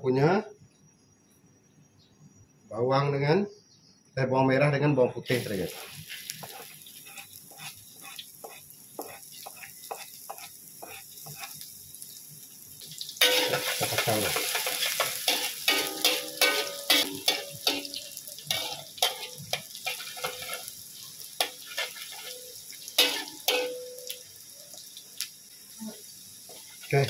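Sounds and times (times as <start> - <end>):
food sizzling in oil: 5.3 - 27.0
metal spatula scraping wok: 5.4 - 11.6, 13.2 - 24.0.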